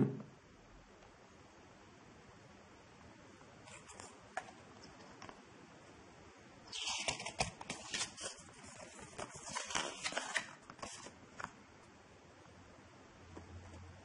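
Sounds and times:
paper leaflet rustling: 6.7s - 11.5s.

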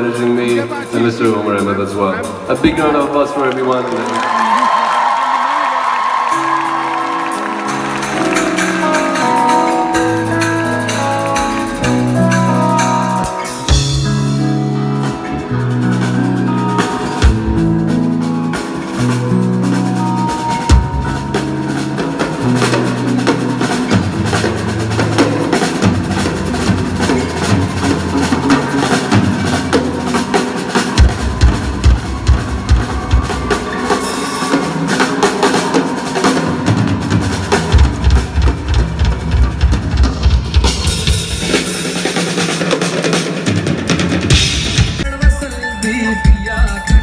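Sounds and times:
live band playing: 0.0s - 47.0s
rapid snare and bass drum hits: 22.3s - 47.0s.

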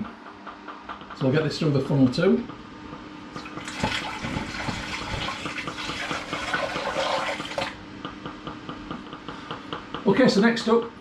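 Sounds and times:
water pouring and splashing: 3.4s - 7.8s.

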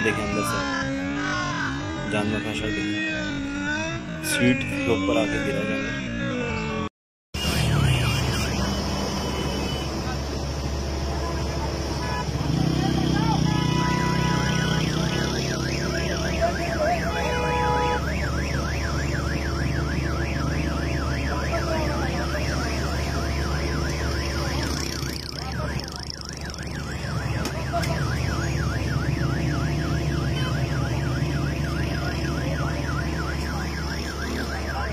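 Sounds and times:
electronic siren yelping: 0.0s - 9.8s, 12.0s - 34.9s.

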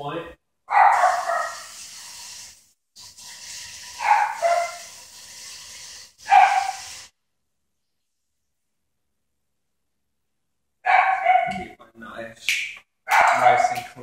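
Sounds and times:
dog barking: 0.7s - 1.7s, 4.0s - 4.9s, 6.2s - 6.9s, 10.8s - 11.7s, 13.1s - 13.9s
sink tap running: 1.0s - 7.1s.

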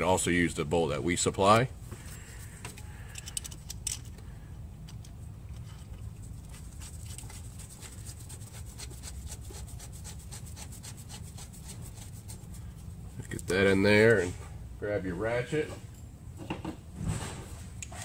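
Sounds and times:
steady low hum: 0.0s - 18.0s
small metal clicks and scrapes: 2.6s - 7.9s.

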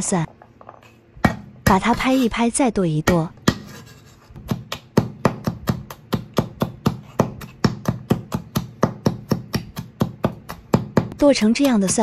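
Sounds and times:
cleaver chopping on wooden board: 1.2s - 1.8s, 4.4s - 12.0s.

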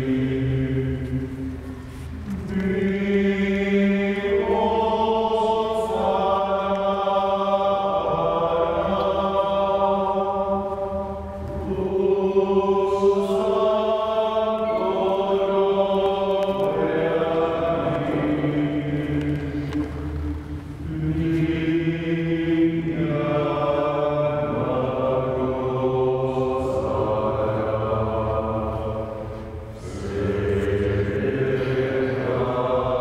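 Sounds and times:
choir singing a slow hymn: 0.0s - 33.0s.

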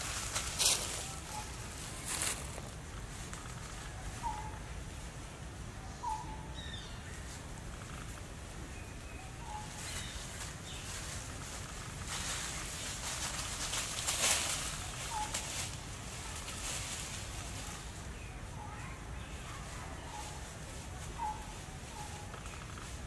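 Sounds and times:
dry leaves rustling and crackling: 0.0s - 4.6s, 9.3s - 23.0s
birds chirping: 0.0s - 5.0s, 5.7s - 23.0s.

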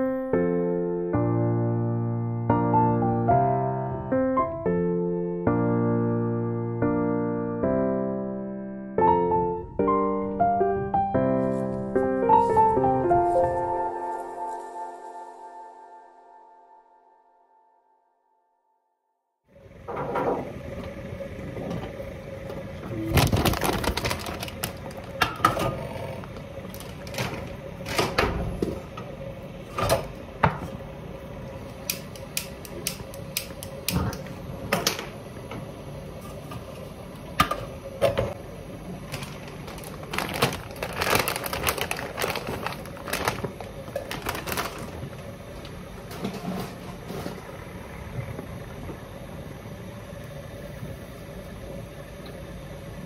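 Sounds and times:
faint steady hum: 19.6s - 53.0s.

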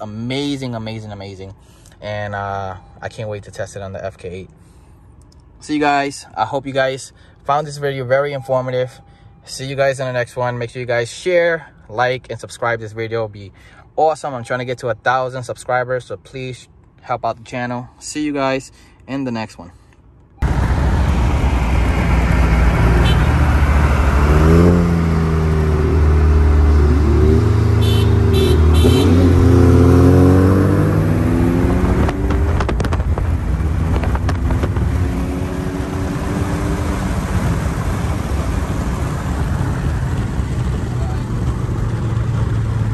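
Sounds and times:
road and wind noise: 0.0s - 42.9s
car engine accelerating: 20.4s - 42.9s.

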